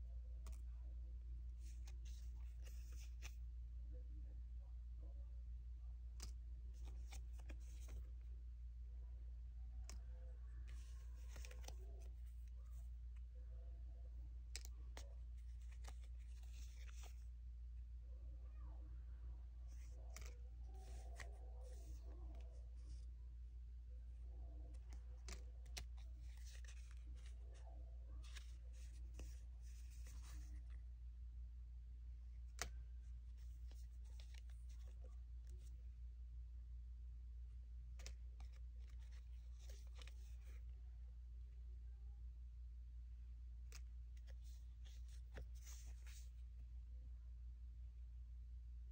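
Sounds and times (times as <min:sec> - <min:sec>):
stickers rustling: 0:06.2 - 0:08.2, 0:09.8 - 0:13.3, 0:14.4 - 0:17.3, 0:19.7 - 0:23.1, 0:24.5 - 0:30.8.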